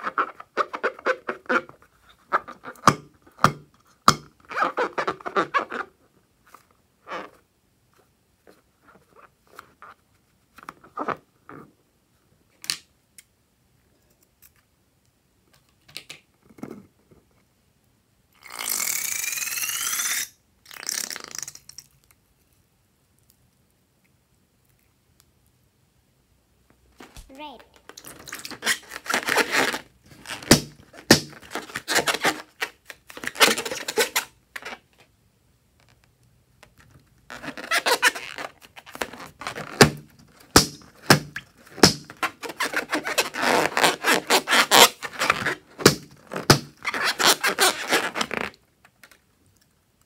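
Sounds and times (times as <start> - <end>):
balloon squeaking and crackling: 0.0 - 3.1, 4.4 - 6.0, 18.4 - 21.7, 27.0 - 35.0, 37.3 - 48.6.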